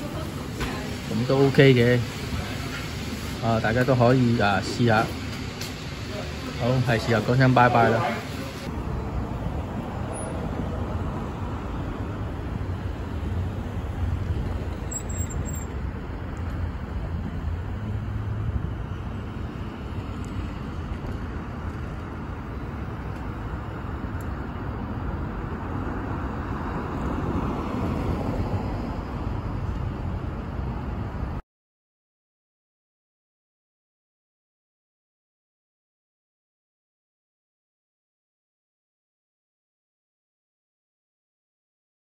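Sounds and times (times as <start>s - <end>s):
traffic rumble: 0.0s - 31.4s
car passing close: 8.4s - 31.2s.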